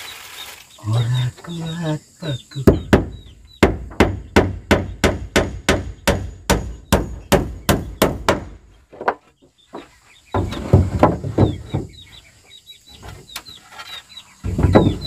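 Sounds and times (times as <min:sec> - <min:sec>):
hammer hitting nail: 0:02.6 - 0:08.6.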